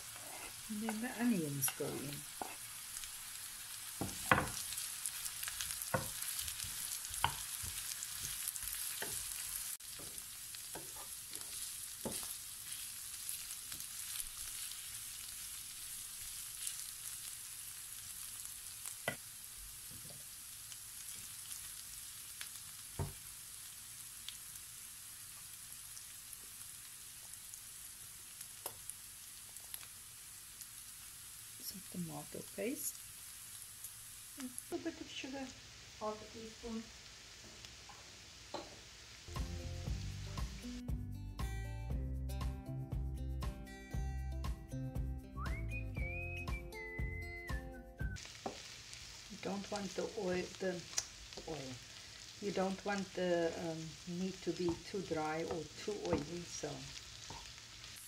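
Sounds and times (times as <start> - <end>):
spatula scraping against pan: 0.0 - 2.7, 10.8 - 12.9
meat and onions sizzling in pan: 0.0 - 40.8, 47.4 - 58.0.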